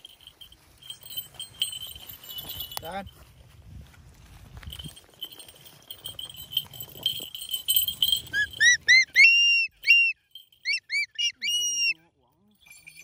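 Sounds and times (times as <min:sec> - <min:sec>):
small bells ringing: 0:00.0 - 0:03.6, 0:04.3 - 0:13.0
bird calling: 0:08.3 - 0:12.0.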